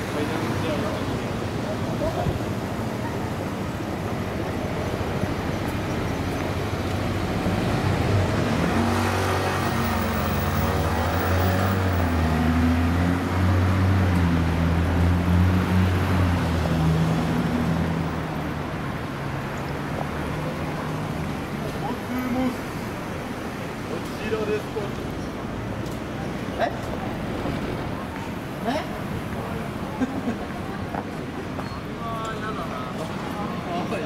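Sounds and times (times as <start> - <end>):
steady traffic noise: 0.0 - 34.0
vehicle engine passing: 6.3 - 19.3.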